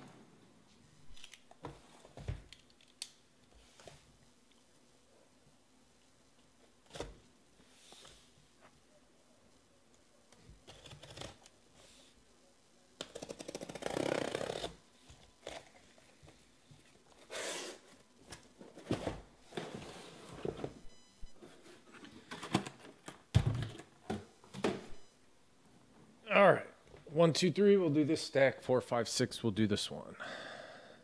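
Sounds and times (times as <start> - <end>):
packing tape and cardboard tearing: 10.6 - 11.6, 13.0 - 14.8, 17.2 - 18.0.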